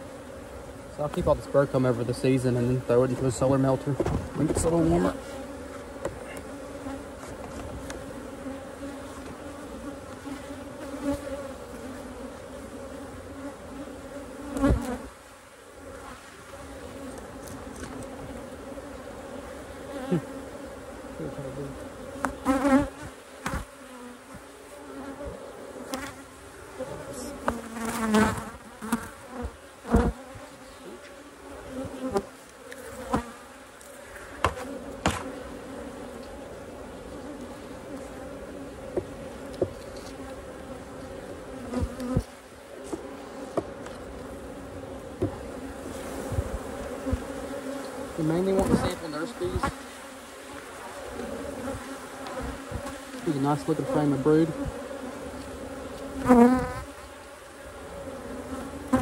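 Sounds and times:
bees buzzing: 0:00.0 - 0:59.0.

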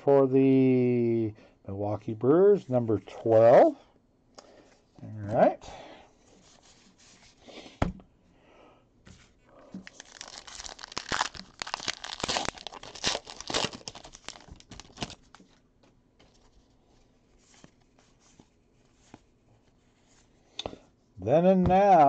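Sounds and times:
wrapper tearing and crinkling: 0:09.8 - 0:15.4
cards rustling and clicking: 0:09.8 - 0:16.5.

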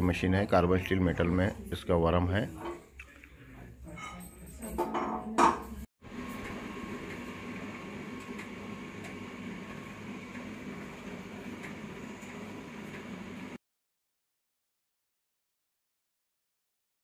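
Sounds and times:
oil press machine humming: 0:06.0 - 0:13.6.

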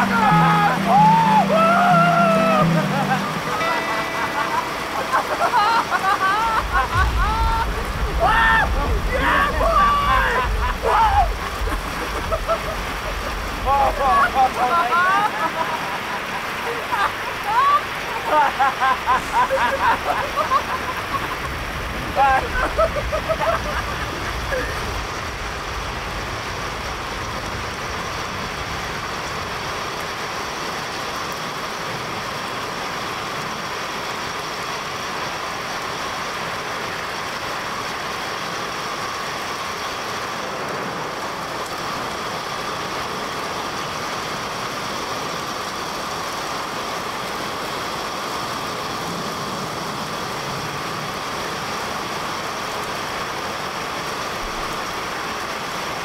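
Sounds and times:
steady rushing noise: 0:00.0 - 0:30.5.

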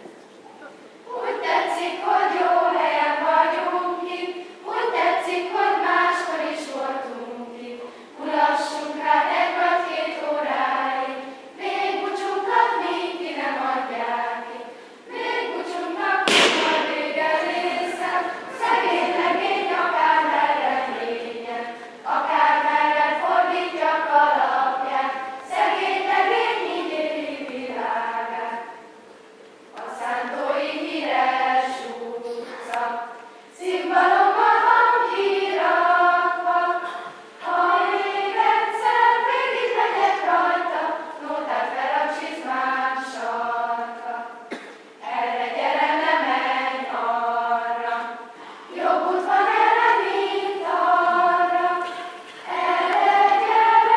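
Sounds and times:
children's choir singing: 0:01.0 - 0:29.0, 0:29.7 - 0:53.9
sharp knock: 0:16.3 - 0:17.1.

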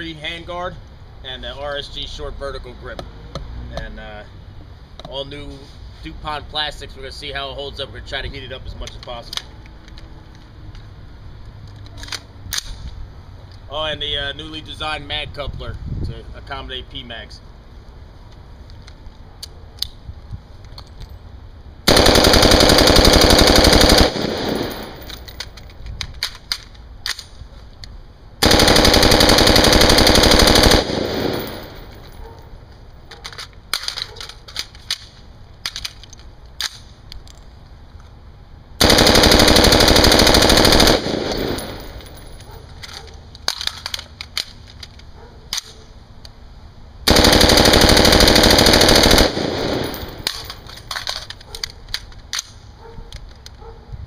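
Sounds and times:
rifle automatic fire bursts: 0:21.9 - 0:25.2, 0:28.4 - 0:31.9, 0:38.8 - 0:42.0, 0:47.1 - 0:50.6.

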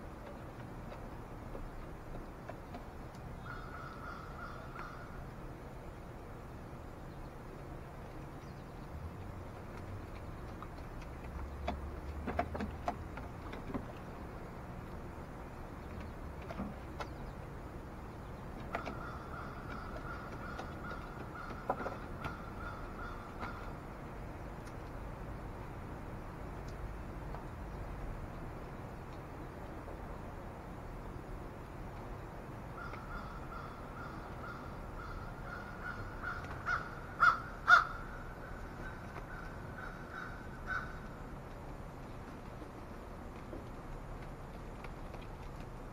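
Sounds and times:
crows cawing: 0:03.4 - 0:05.2, 0:18.8 - 0:23.8, 0:32.8 - 0:41.2.

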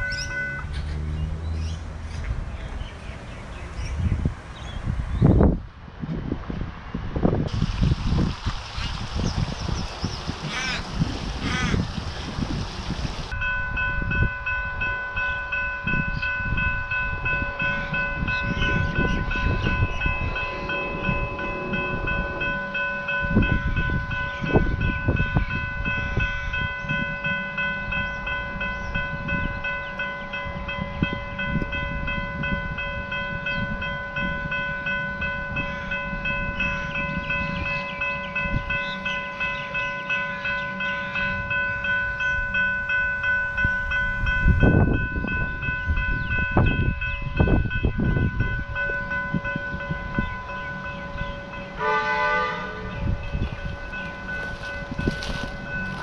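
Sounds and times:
wind on microphone: 0:00.0 - 0:40.5, 0:43.2 - 0:56.0
level crossing bells ringing: 0:13.3 - 0:56.0.

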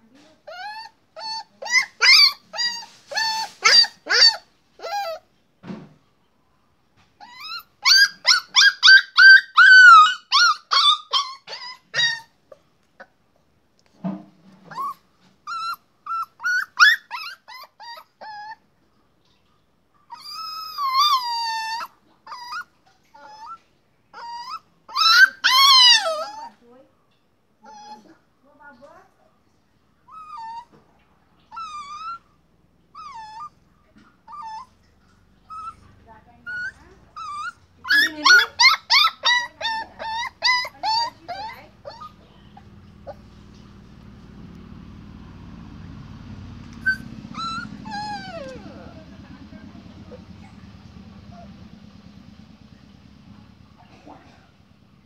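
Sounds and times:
puppy whining: 0:00.0 - 0:05.4, 0:07.1 - 0:13.2, 0:14.4 - 0:26.8, 0:27.6 - 0:28.3, 0:30.0 - 0:44.7, 0:45.4 - 0:52.4, 0:53.7 - 0:55.0
puppy barking: 0:01.6 - 0:05.2, 0:07.4 - 0:12.3, 0:24.5 - 0:26.6, 0:35.7 - 0:43.4, 0:46.8 - 0:51.6.

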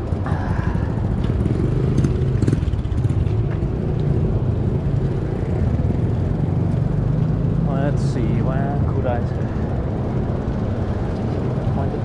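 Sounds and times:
tyres rumbling on road: 0:00.0 - 0:12.0.

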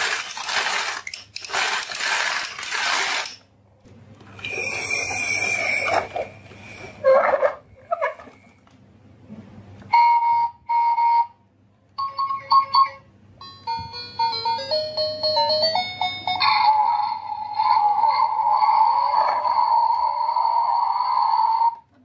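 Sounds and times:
steady electronic tone: 0:16.2 - 0:21.9.

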